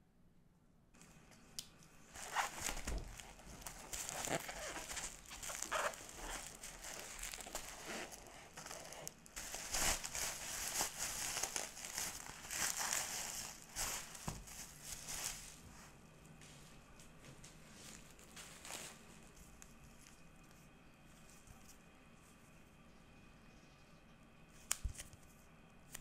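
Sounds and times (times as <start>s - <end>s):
bubble wrap crinkling: 1.8s - 16.0s, 17.6s - 22.4s.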